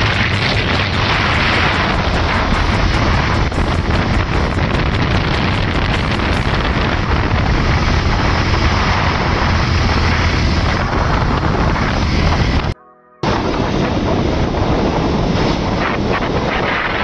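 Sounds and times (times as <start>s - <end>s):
motorcycle engine running: 0.0s - 12.8s
wind buffeting the microphone: 0.0s - 17.0s.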